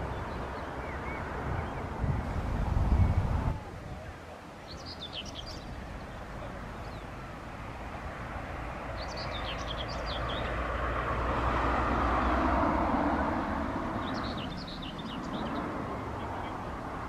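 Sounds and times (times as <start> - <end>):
bird chirps: 4.6 - 7.2, 8.9 - 10.6, 14.0 - 16.7
vehicle passing on road: 5.0 - 17.0.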